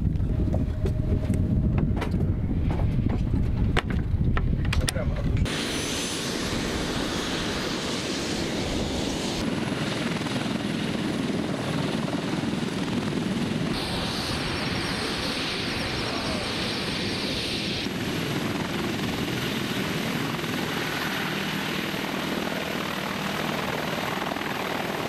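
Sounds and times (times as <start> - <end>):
wind buffeting microphone: 0.0 - 20.8
helicopter turbine and rotor: 0.0 - 25.0.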